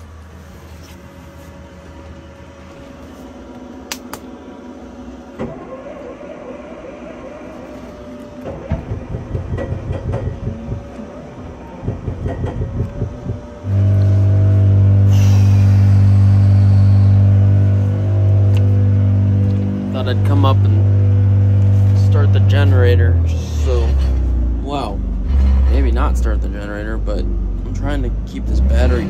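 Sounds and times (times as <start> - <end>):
loud steady drone: 0.0 - 29.0
car starter cranking engine: 5.4 - 17.2.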